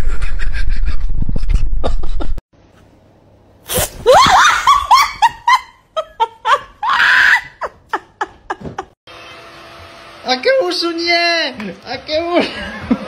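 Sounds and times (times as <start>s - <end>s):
person laughing hard: 0.0s - 2.4s, 4.0s - 9.0s, 12.4s - 13.0s.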